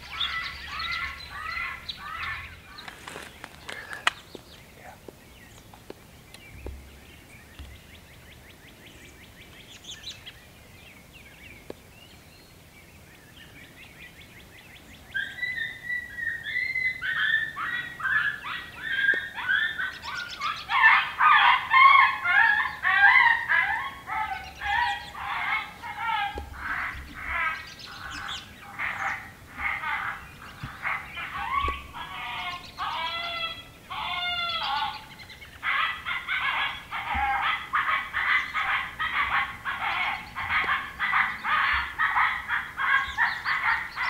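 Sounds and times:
chorus of animal calls: 0.0 - 4.2, 15.1 - 44.0.

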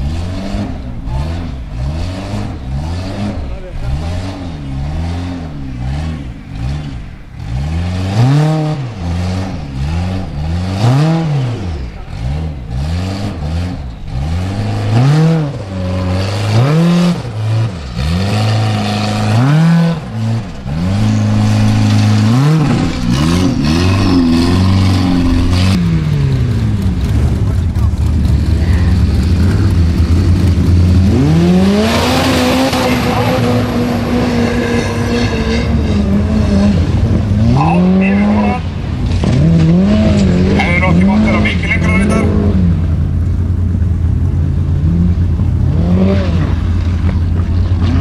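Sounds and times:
buggy engine revving: 0.0 - 48.0.

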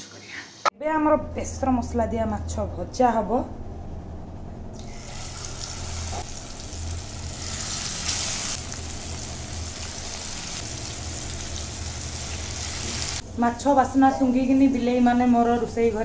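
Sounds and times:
fish sizzling in hot oil: 4.9 - 13.2.

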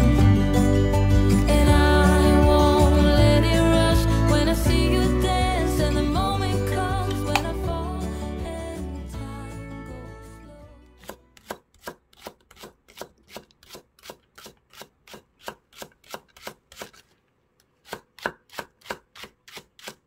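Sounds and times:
knife slicing onion on board: 11.0 - 17.1, 17.8 - 20.0.

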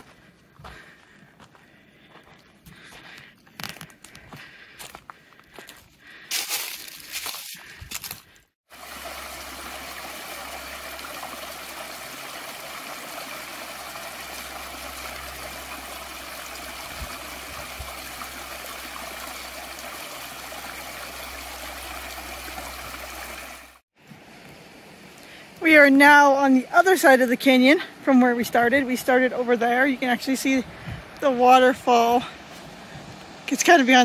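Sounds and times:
stream trickling over stones: 6.3 - 32.5.

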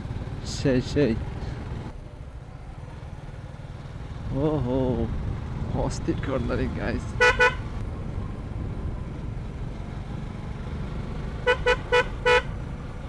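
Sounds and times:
motorcycle engine: 0.0 - 13.0
wind rumble: 6.6 - 11.2
horn beeps: 7.2 - 7.6.

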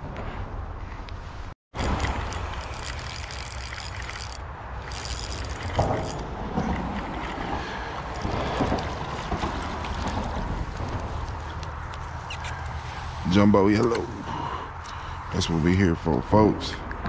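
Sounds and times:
wind buffeting microphone: 0.0 - 14.8.

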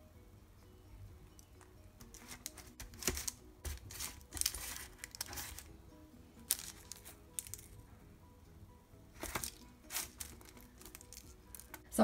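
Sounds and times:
baking parchment rustling: 2.0 - 5.7, 6.4 - 7.8, 9.2 - 11.8.

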